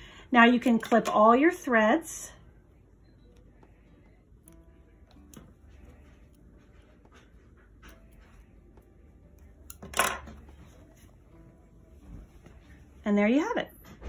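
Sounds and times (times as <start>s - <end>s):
fabric rustling: 10.4s - 13.2s.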